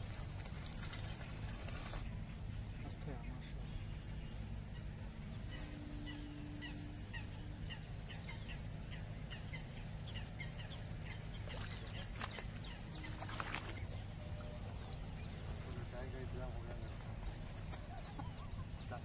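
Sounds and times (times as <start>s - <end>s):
birds chirping: 0.0s - 19.0s
low wind rumble: 0.0s - 19.0s
scratchy rustles: 0.3s - 2.0s.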